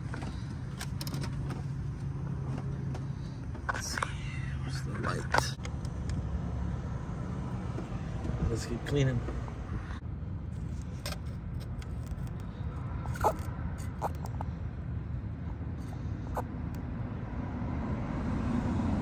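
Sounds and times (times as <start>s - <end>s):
light clicks and scrapes: 10.6s - 14.5s.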